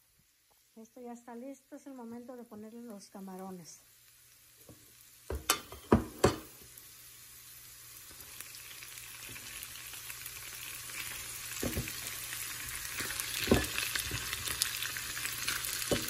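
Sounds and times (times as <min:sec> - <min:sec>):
shrimp sizzling in a skillet: 0:00.0 - 0:16.0
sharp knocks in a skillet: 0:04.6 - 0:06.6, 0:11.6 - 0:12.1, 0:13.0 - 0:14.4.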